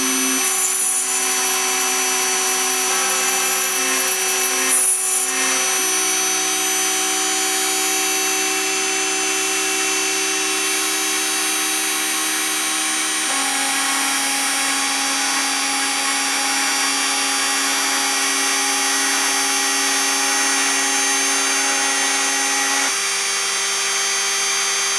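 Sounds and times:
motors humming low tones: 0:00.0 - 0:22.9
router spindle high whine: 0:00.0 - 0:24.9.

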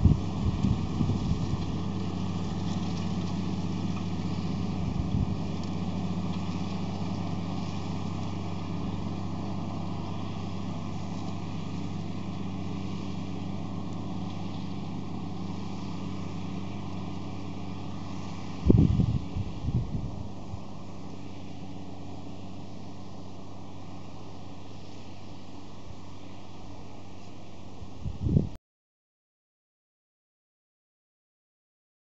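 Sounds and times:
wind buffeting microphone: 0:00.0 - 0:01.7, 0:18.6 - 0:20.2, 0:28.0 - 0:28.6
diesel engine running: 0:00.0 - 0:28.5.

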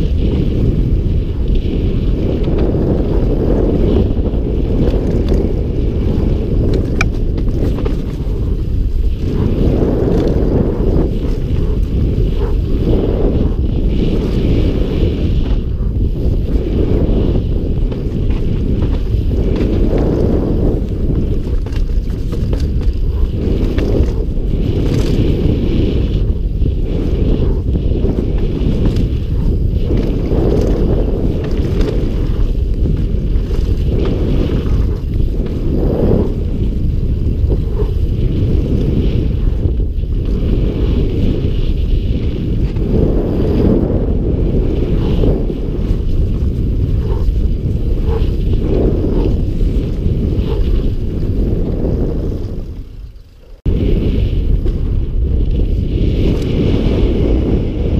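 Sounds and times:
tyres running over dirt: 0:00.0 - 0:43.8
bike rattling: 0:00.0 - 0:57.9
wind rumble on microphone: 0:00.0 - 0:57.9.

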